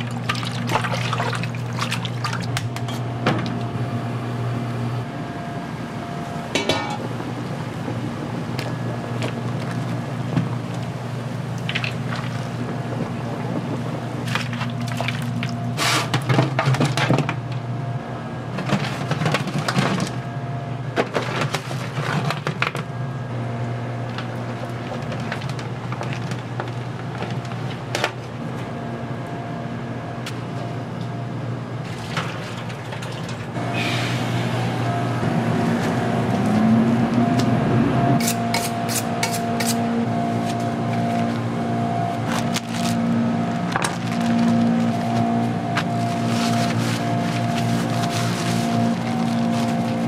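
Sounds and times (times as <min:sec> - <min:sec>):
steady low hum: 0:00.0 - 0:50.0
kitchen clatters and knocks: 0:06.6 - 0:07.1.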